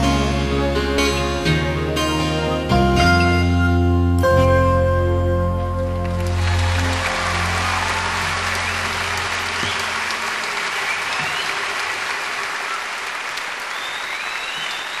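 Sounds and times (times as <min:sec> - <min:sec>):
crowd applauding and cheering: 0:05.7 - 0:15.0
whistles from crowd: 0:06.5 - 0:15.0.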